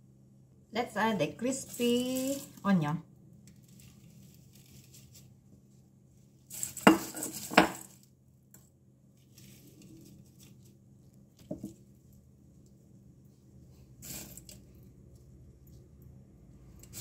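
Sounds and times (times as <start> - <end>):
metal bowl clinking: 6.6 - 7.9.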